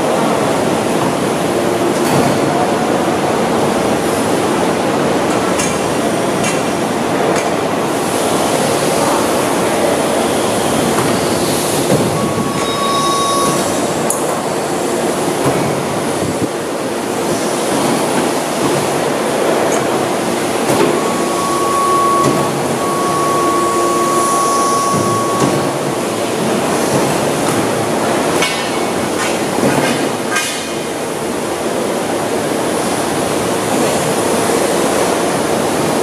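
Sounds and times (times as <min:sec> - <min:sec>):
high whine: 0:09.0 - 0:27.0.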